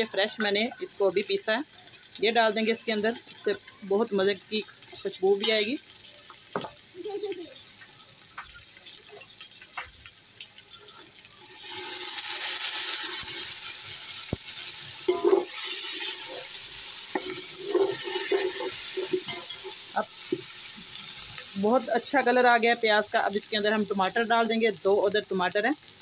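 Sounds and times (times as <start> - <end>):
onions sizzling in hot oil: 0.0 - 26.0
metal spoon scraping pot: 15.1 - 20.0.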